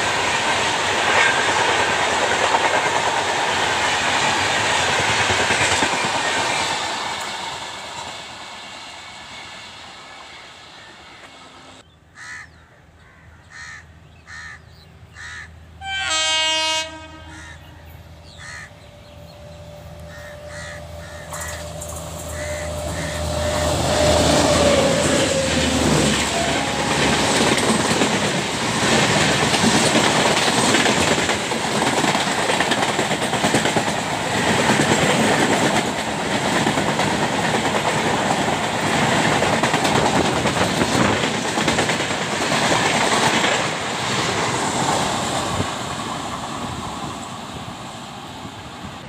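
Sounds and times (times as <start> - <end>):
locomotive passing at speed: 0.0 - 11.8, 18.9 - 49.0
train wheels clacking on track: 0.0 - 11.8, 20.0 - 47.4.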